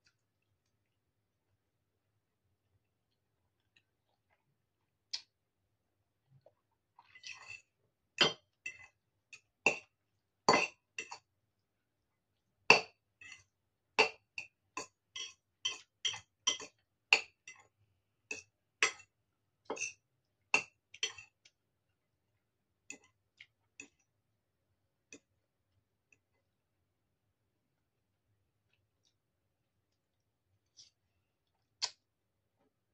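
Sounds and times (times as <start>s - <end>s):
metal fork clinking on ceramic bowl: 14.0s - 17.6s.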